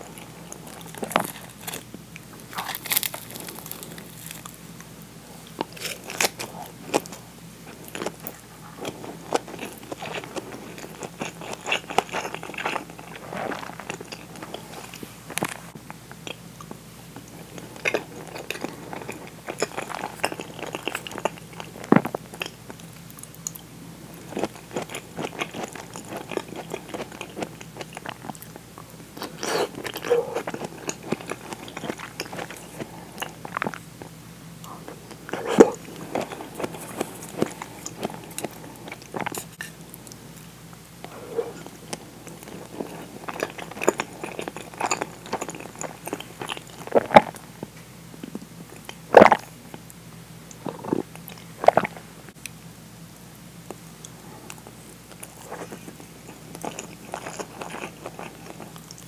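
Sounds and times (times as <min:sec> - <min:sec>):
chewing with wet mouth clicks: 0:07.8 - 0:33.8, 0:34.6 - 0:47.4, 0:53.7 - 0:59.0.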